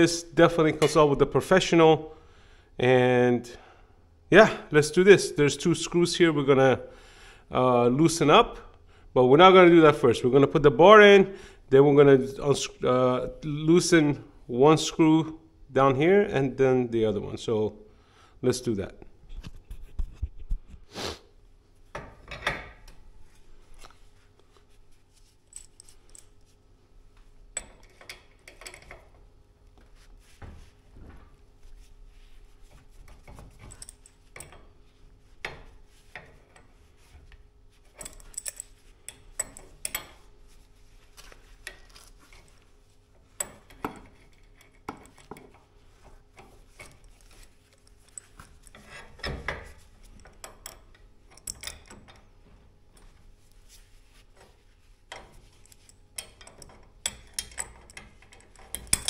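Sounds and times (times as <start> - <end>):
faint steady hum: 0.0 - 59.0
metal tool clinks and taps: 33.1 - 34.7, 37.9 - 40.2, 43.4 - 45.6, 46.4 - 52.2, 55.1 - 59.0.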